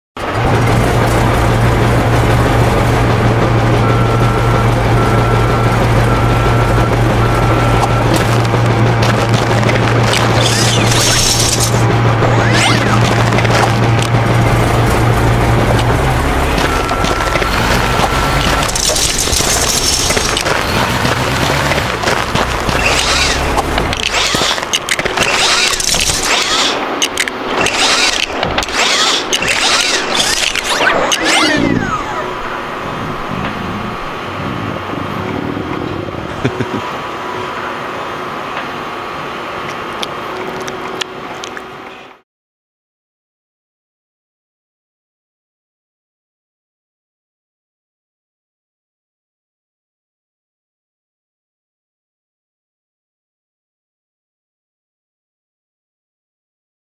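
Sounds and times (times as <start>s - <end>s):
truck engine running: 0.2s - 42.2s
long beeps: 3.6s - 8.6s, 15.9s - 20.5s
short sliding tones: 3.9s - 14.2s, 15.7s - 34.1s
clicks: 7.6s - 14.2s, 15.7s - 32.4s.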